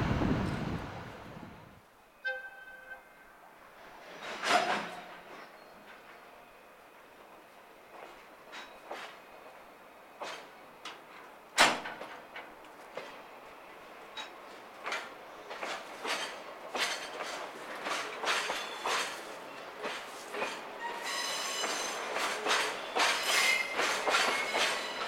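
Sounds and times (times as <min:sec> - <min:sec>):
train wheels clacking over rail joints: 0:03.9 - 0:06.2, 0:07.9 - 0:09.2, 0:10.2 - 0:13.4, 0:14.1 - 0:25.0.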